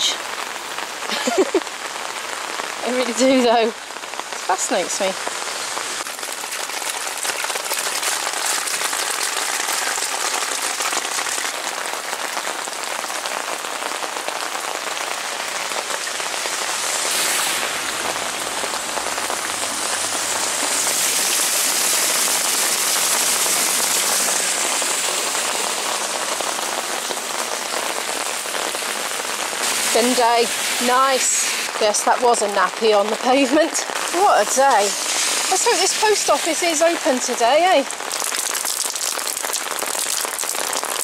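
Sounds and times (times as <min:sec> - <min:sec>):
heavy rain on pavement: 0:00.0 - 0:41.0
water running along gutter: 0:00.0 - 0:41.0
foot splashing through water: 0:06.0 - 0:11.6.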